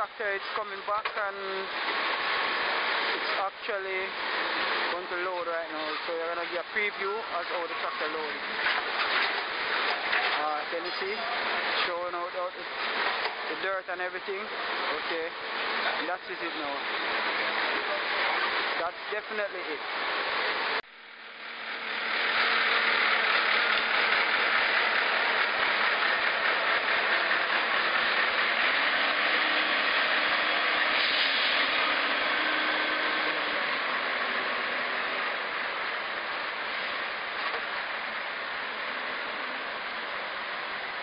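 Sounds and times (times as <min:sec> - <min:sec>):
backhoe diesel engine running: 0:19.6 - 0:41.0.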